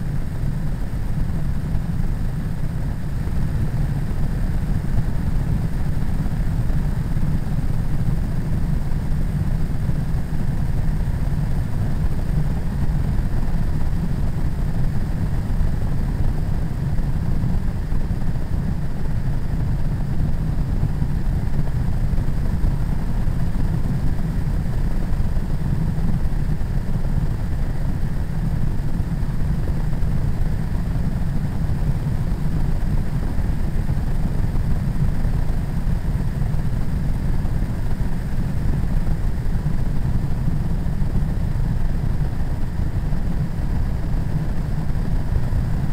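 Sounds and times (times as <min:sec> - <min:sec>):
ultralight engine and propeller drone: 0:00.0 - 0:45.9.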